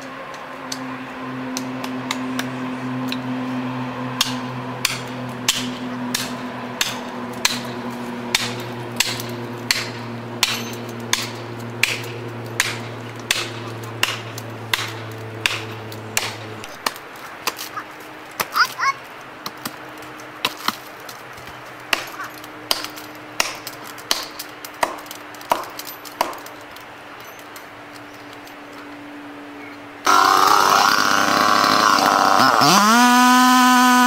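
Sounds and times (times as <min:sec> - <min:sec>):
chainsaw idling: 0:30.0 - 0:34.0.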